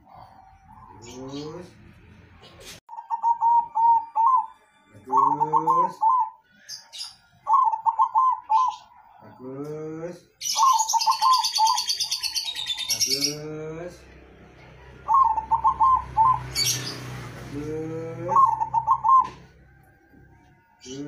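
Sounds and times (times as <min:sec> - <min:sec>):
dove cooing: 0:02.9 - 0:06.4, 0:07.5 - 0:09.2, 0:10.5 - 0:13.5, 0:14.8 - 0:19.7.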